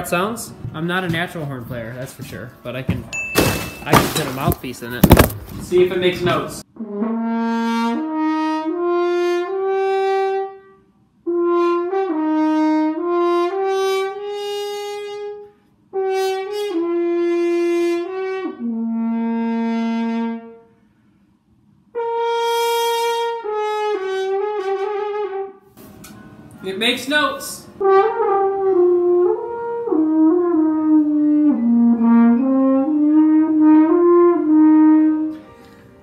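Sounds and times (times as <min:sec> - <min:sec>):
brass horn held notes: 0:06.8 - 0:20.7, 0:21.9 - 0:25.7, 0:27.8 - 0:35.6.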